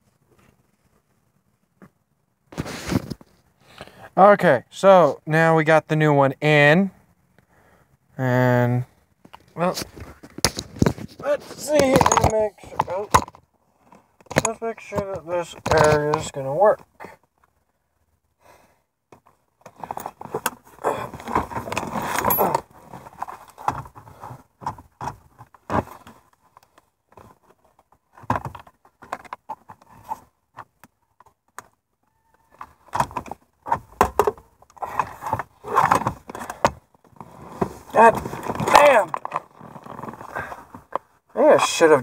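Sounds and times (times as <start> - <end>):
plastic and metal clatter: 9.2 - 16.4, 19.1 - 31.8, 32.4 - 41.1.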